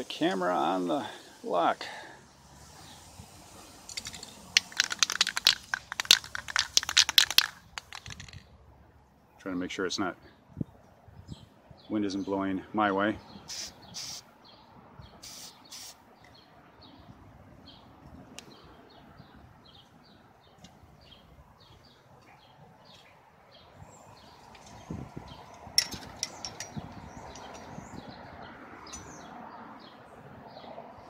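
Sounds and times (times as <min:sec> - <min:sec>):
handling clicks and rustles: 0:03.8 - 0:08.5, 0:24.4 - 0:28.0
bird chirping: 0:13.2 - 0:30.7
aerosol spray can hissing: 0:13.5 - 0:14.2, 0:15.2 - 0:16.0.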